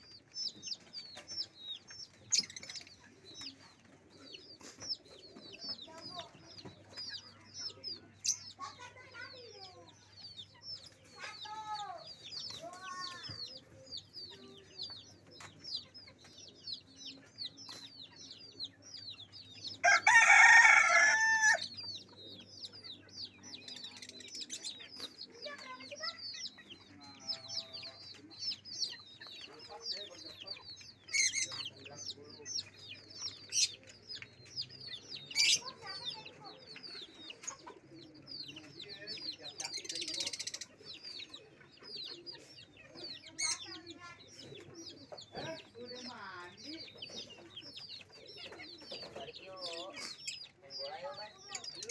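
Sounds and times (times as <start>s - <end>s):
small birds chirping: 0.0s - 51.9s
rooster crowing: 19.8s - 21.7s.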